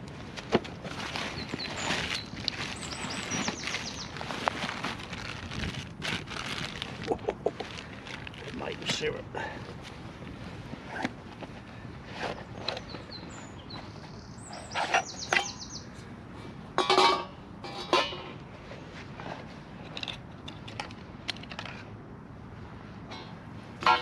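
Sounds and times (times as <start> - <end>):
bird chirping: 1.3 - 4.2, 12.6 - 16.0.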